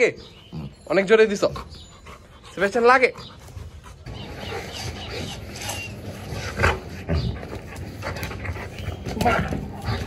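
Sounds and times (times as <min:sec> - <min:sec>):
dog playing: 0:00.2 - 0:10.0.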